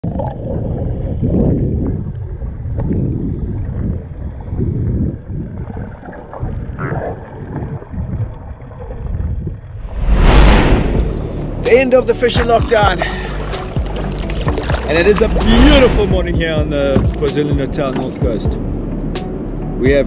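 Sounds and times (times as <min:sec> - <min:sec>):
muffled underwater rush: 0:09.8 - 0:11.6, 0:15.0 - 0:16.9.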